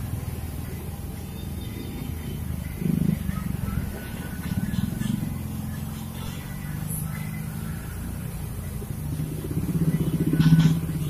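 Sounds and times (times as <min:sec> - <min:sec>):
motor scooters passing: 0:00.0 - 0:11.0.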